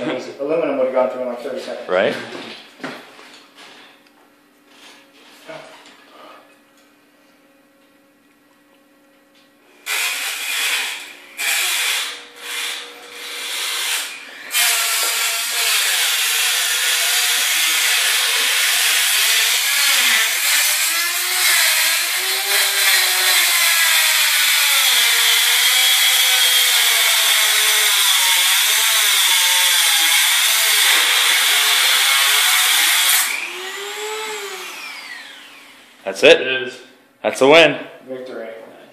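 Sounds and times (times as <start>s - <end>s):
grinder disc cutting metal: 9.8s - 35.9s.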